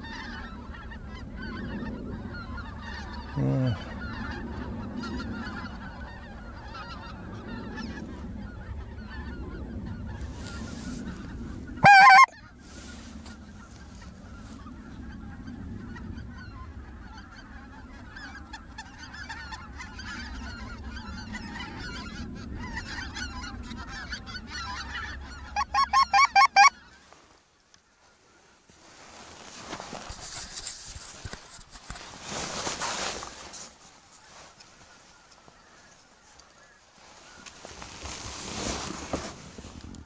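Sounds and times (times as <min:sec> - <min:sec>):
geese honking: 0:00.0 - 0:28.7, 0:34.0 - 0:38.2
loud close goose honk: 0:11.8 - 0:12.4, 0:22.6 - 0:26.9.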